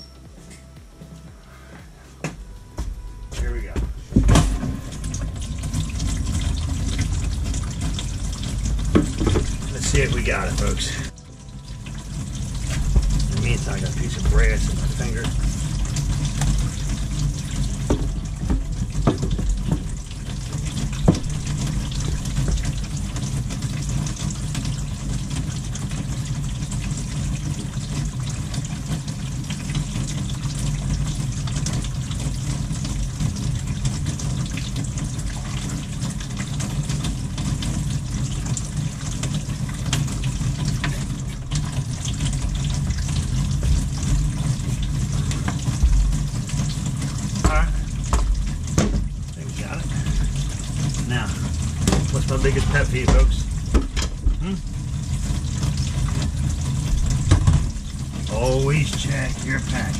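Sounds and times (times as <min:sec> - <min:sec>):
faucet water running into sink: 0:02.5 - 0:59.9
knocks: 0:08.9 - 0:09.7, 0:17.8 - 0:19.9, 0:47.4 - 0:49.1, 0:53.1 - 0:54.5.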